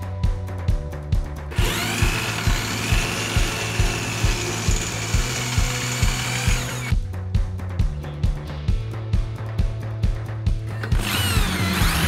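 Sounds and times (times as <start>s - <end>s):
cordless drill drilling into steel: 1.5s - 7.0s, 10.8s - 12.0s.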